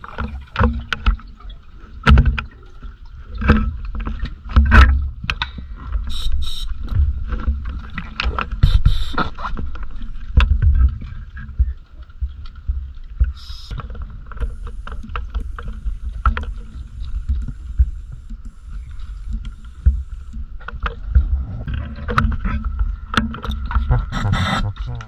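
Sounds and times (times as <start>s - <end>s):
underwater rumble of moving water: 0.0s - 25.0s
small clicks and knocks: 3.3s - 5.6s
faint steady hum: 10.7s - 25.0s.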